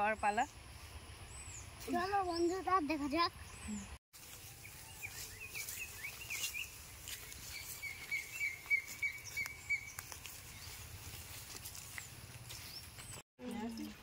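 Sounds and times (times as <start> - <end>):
birds chirping: 0.0 - 4.0, 4.6 - 14.0.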